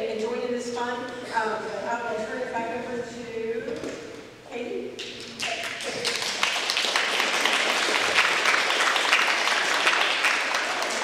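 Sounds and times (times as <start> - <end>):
crowd applauding: 5.3 - 11.0.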